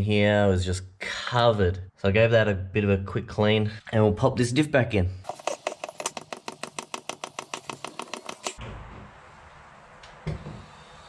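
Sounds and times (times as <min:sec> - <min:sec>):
oil pump clicking rapidly: 0:05.3 - 0:08.6.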